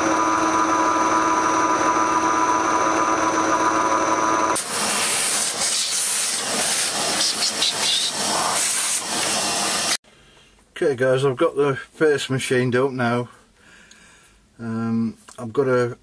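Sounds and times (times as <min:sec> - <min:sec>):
metal lathe whining: 0:00.0 - 0:10.0
shop vacuum hissing: 0:00.0 - 0:10.0.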